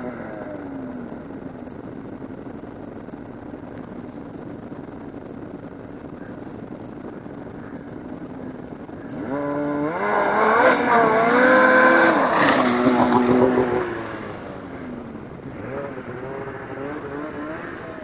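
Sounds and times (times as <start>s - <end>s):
snowmobile engine revving: 9.1s - 18.0s.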